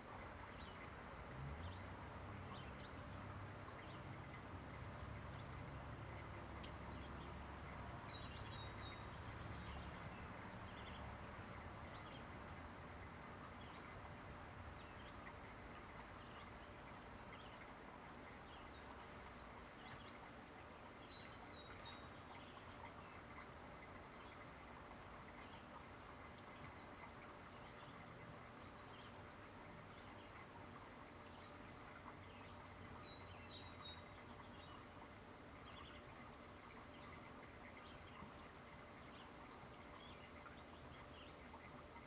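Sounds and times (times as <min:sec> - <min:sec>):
low background noise: 0:00.0 - 0:42.0.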